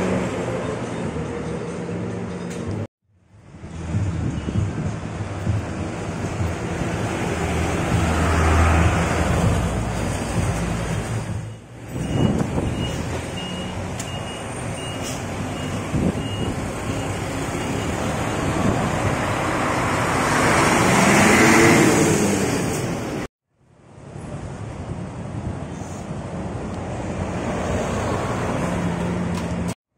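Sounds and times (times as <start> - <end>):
bus engine running: 0.0 - 21.2
heavy truck passing: 0.0 - 23.3, 24.2 - 29.8
repeating high beep: 11.4 - 18.0.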